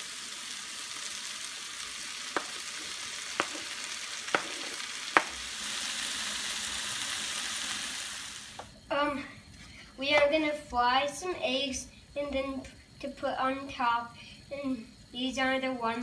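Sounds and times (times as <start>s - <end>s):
vegetables sizzling in a frying pan: 0.0s - 9.2s
wooden spoon scraping: 2.4s - 5.4s
spoon knocking on pan: 2.4s - 5.5s.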